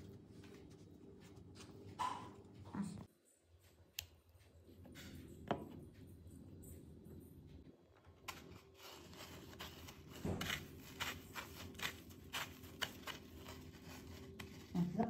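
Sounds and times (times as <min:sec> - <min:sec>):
breadcrumbs crunching and rustling: 0:08.0 - 0:15.0.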